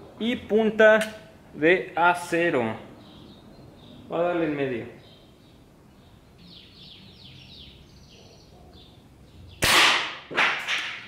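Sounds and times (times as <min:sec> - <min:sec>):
air rifle shot: 0:09.6 - 0:11.0
short sharp crack: 0:09.6 - 0:11.0.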